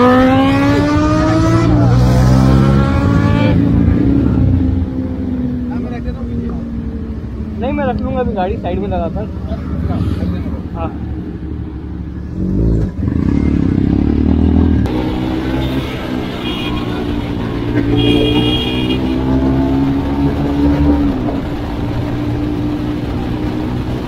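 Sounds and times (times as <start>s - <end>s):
vehicle horn tooting: 15.6s - 19.3s.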